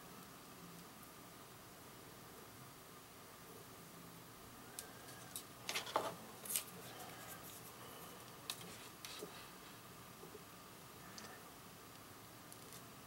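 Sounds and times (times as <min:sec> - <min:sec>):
soldering clicks and crackles: 0:11.2 - 0:13.0.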